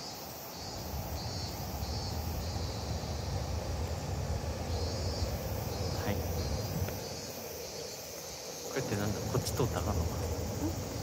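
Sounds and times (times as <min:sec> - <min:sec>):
cicadas singing: 0:00.0 - 0:11.0
wind rumble on microphone: 0:01.0 - 0:07.3.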